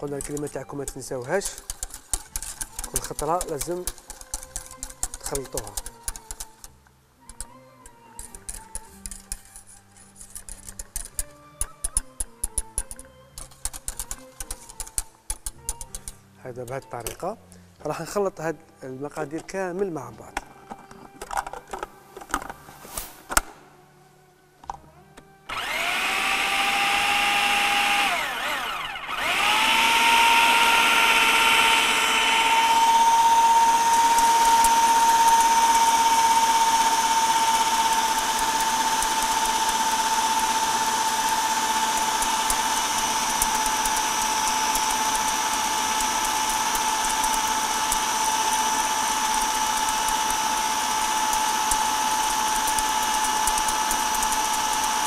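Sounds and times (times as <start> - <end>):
food processor motor whining: 25.5 - 55.0.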